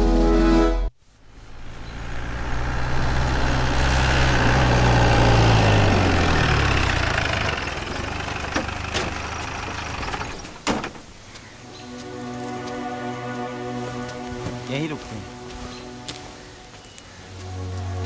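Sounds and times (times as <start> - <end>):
vehicle engine driving up: 1.2 - 10.6.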